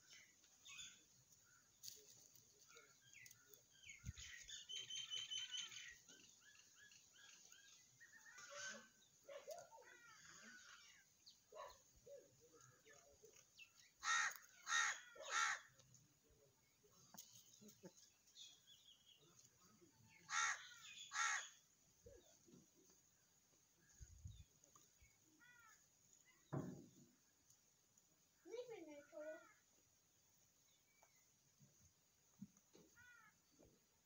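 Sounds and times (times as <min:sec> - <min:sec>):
small birds chirping: 0:00.0 - 0:34.0
crow cawing: 0:14.0 - 0:15.7, 0:20.3 - 0:21.6.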